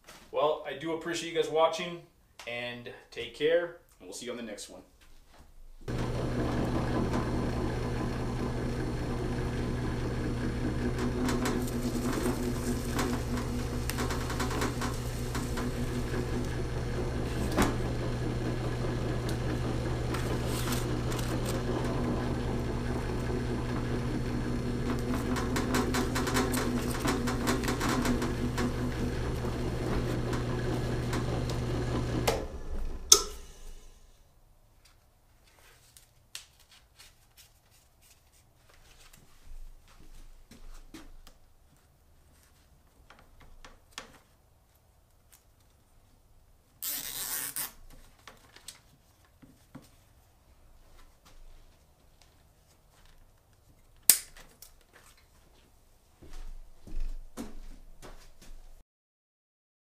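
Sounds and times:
drill press motor humming: 0:05.9 - 0:34.0
sharp click: 0:33.1 - 0:33.5, 0:54.1 - 0:54.4.

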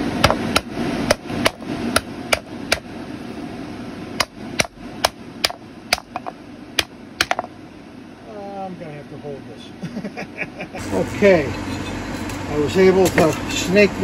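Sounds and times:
hammer striking pipe coupling: 0:04.2 - 0:07.5.

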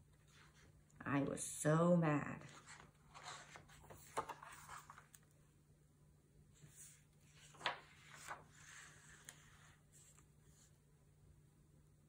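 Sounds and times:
faint steady hum: 0:00.0 - 0:12.0
book page turning: 0:02.4 - 0:05.4, 0:06.6 - 0:10.7.

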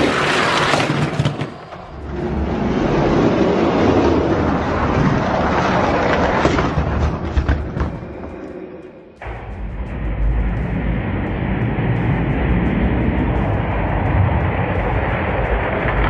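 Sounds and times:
toy trucks rolling down plastic track: 0:00.0 - 0:01.8.

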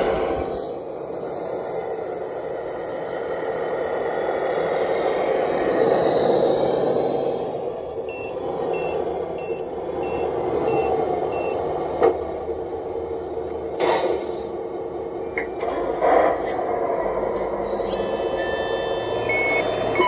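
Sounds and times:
clunk: 0:13.7 - 0:14.4
toy truck motor whir: 0:17.6 - 0:20.0
reversing beeper high beeps: 0:17.7 - 0:20.0.

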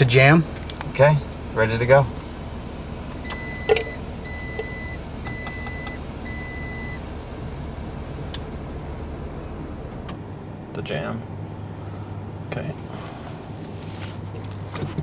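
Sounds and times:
vehicle cabin hum: 0:00.0 - 0:15.0
car warning chime beeping: 0:03.2 - 0:07.1.

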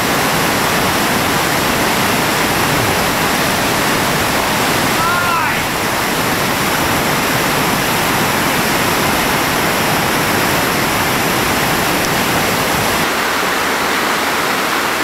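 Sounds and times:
deep water rumble: 0:00.0 - 0:15.0
water rushing over waterfall: 0:00.0 - 0:15.0.

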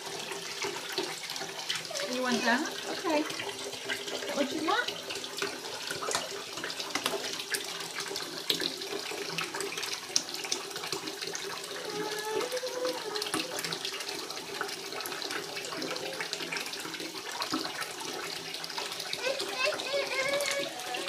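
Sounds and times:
water running into bathtub: 0:00.0 - 0:21.0
splashes and toy knocks: 0:04.3 - 0:07.6.

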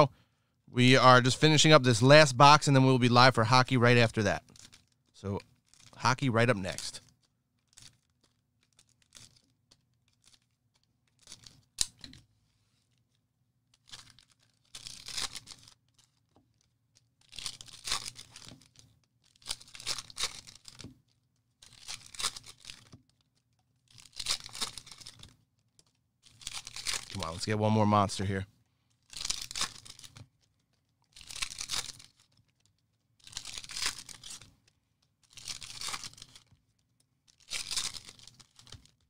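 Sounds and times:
card pack wrappers tearing: 0:21.6 - 0:23.0, 0:26.2 - 0:27.4, 0:29.0 - 0:30.2, 0:31.1 - 0:34.5, 0:35.2 - 0:36.5, 0:37.3 - 0:39.0.

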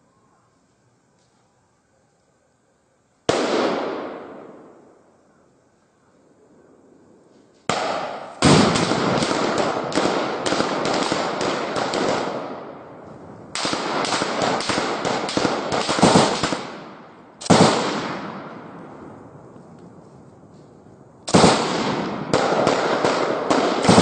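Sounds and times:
rapid gunfire: 0:07.7 - 0:12.6, 0:13.6 - 0:18.4, 0:21.3 - 0:24.0.

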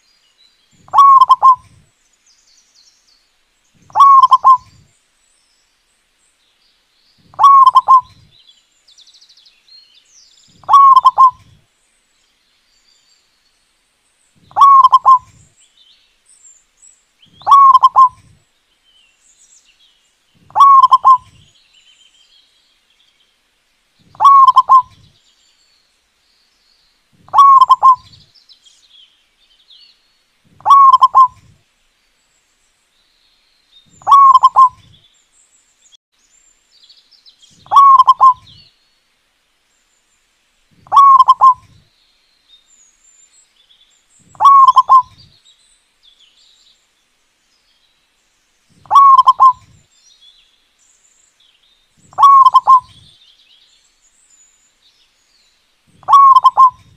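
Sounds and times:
small birds chirping: 0:00.0 - 0:56.9
dove cooing: 0:00.9 - 0:01.8, 0:03.8 - 0:04.8, 0:07.3 - 0:08.3, 0:10.6 - 0:11.6, 0:14.5 - 0:15.4, 0:17.4 - 0:18.3, 0:20.5 - 0:21.4, 0:24.1 - 0:25.0, 0:27.3 - 0:28.2, 0:30.6 - 0:31.6, 0:34.0 - 0:34.9, 0:37.7 - 0:38.5, 0:40.8 - 0:41.8, 0:44.4 - 0:45.2, 0:48.8 - 0:49.8, 0:52.1 - 0:53.1, 0:56.0 - 0:56.9.

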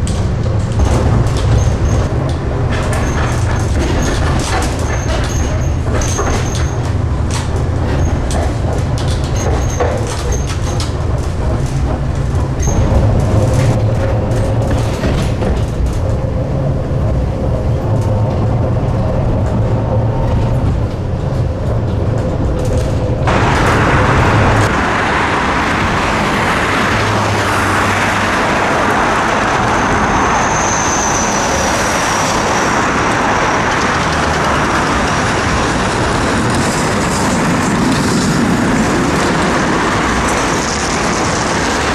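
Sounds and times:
tram rolling on street track: 0:00.0 - 0:41.9
tram rumbling on rails: 0:00.0 - 0:41.9
faint high squeal: 0:30.2 - 0:32.4.

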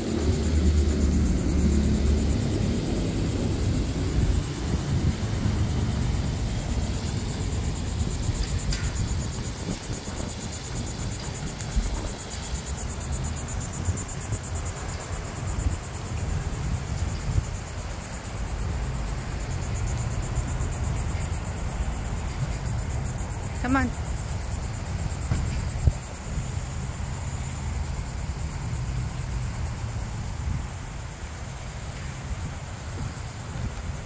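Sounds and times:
low rumble: 0:00.0 - 0:08.5
insect trill: 0:00.0 - 0:34.0.

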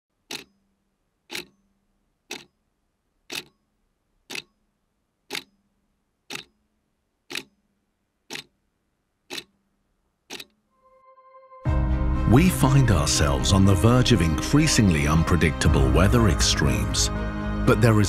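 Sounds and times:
countdown ticking: 0:00.2 - 0:02.6, 0:03.3 - 0:03.6, 0:04.3 - 0:04.7, 0:05.3 - 0:06.7, 0:07.3 - 0:07.7, 0:08.3 - 0:08.6, 0:09.3 - 0:09.6, 0:10.3 - 0:10.7.

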